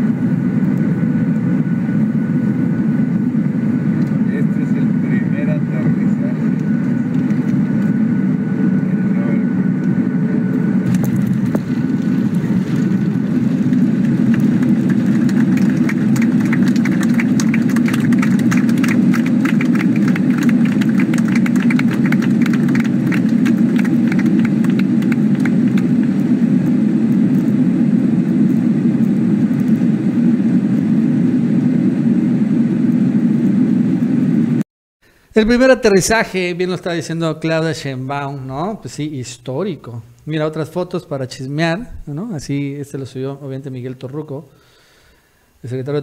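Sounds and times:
airliner cabin rumble: 0.0s - 34.6s
fast patter of sharp clicks: 10.9s - 26.7s.

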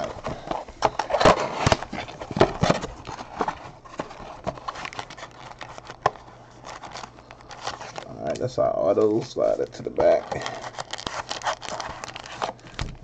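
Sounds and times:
cardboard flaps rustling: 0.0s - 8.1s.

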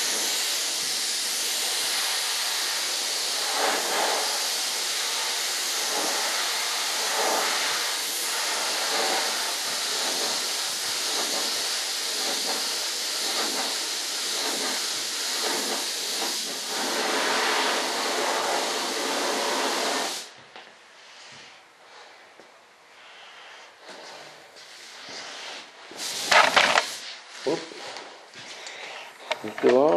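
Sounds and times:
paint sprayer hissing: 0.0s - 20.4s, 23.2s - 27.6s.

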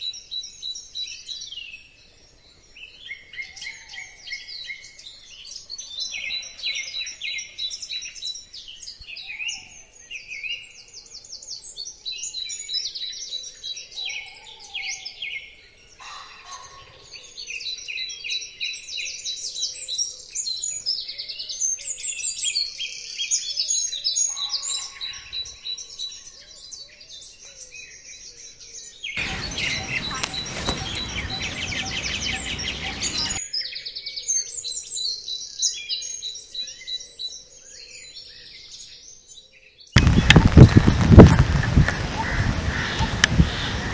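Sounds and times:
birds chirping and singing: 29.2s - 33.4s, 40.0s - 43.9s.

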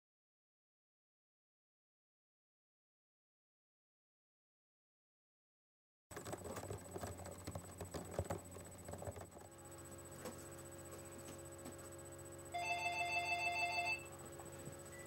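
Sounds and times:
handling clicks and knocks: 6.1s - 9.5s
faint steady hum: 6.1s - 15.0s
telephone trilling ring: 12.5s - 14.2s.

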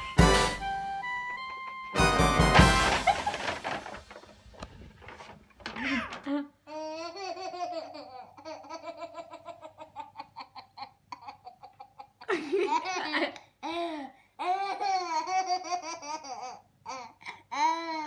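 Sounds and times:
baby laughing: 5.8s - 13.8s, 14.4s - 18.0s.

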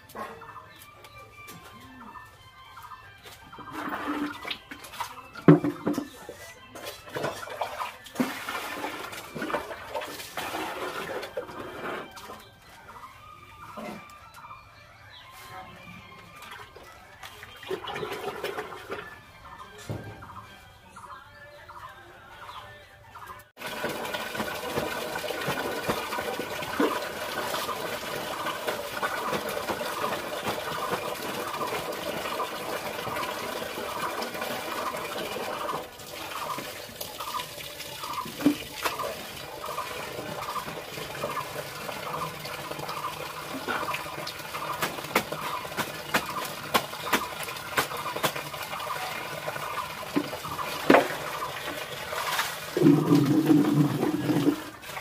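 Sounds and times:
clothes being washed by hand: 6.8s - 12.6s, 23.6s - 55.0s
water running onto concrete: 7.1s - 11.4s, 23.6s - 55.0s.

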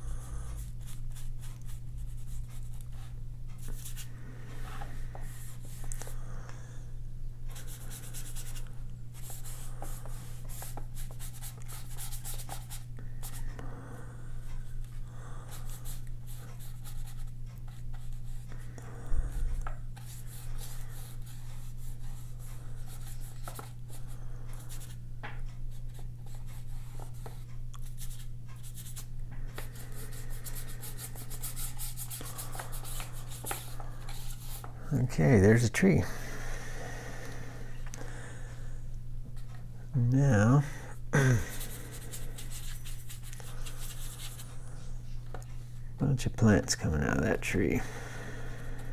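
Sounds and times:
paintbrush scrubbing on paper: 30.0s - 34.7s, 41.9s - 44.5s.

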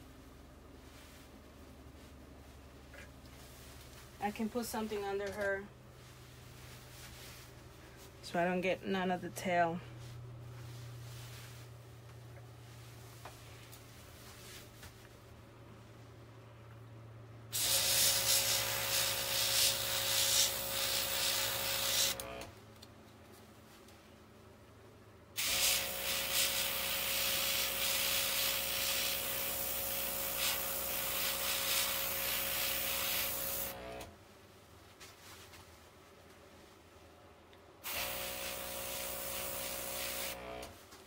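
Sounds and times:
airbrush spraying hiss: 17.6s - 22.2s, 25.4s - 33.8s, 37.9s - 40.4s.

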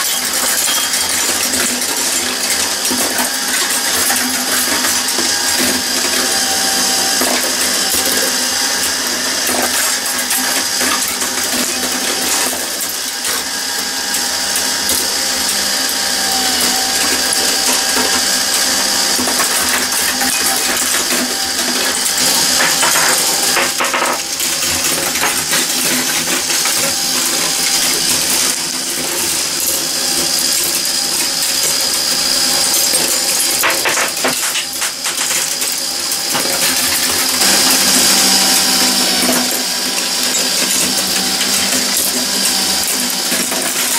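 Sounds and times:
marbles rattling over metal: 16.8s - 43.9s.

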